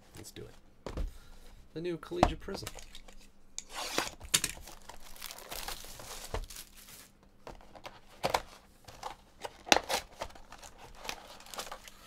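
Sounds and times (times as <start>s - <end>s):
plastic wrap crinkling and tearing: 3.8s - 7.2s, 9.0s - 12.0s.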